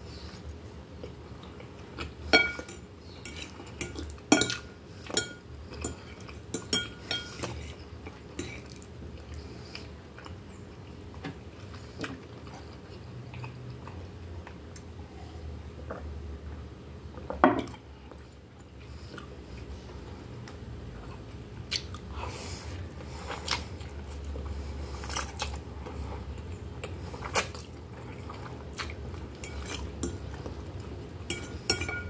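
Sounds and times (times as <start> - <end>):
chewing: 0.4 - 15.0, 18.1 - 31.7
fork clinking on glass bowl: 2.3 - 4.6, 5.2 - 6.0, 31.3 - 32.0.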